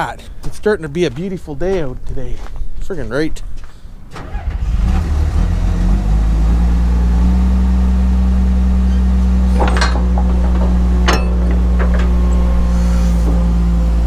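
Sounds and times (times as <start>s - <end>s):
diesel engine running: 5.9s - 14.0s
sharp metallic clanks: 9.4s - 13.5s.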